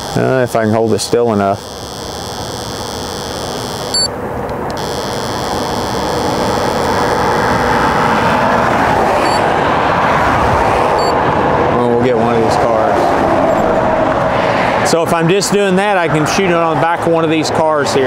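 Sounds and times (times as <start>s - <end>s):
road traffic noise: 0.0s - 18.0s
speed gun beep: 0.8s - 4.1s, 9.2s - 9.4s, 11.0s - 11.2s.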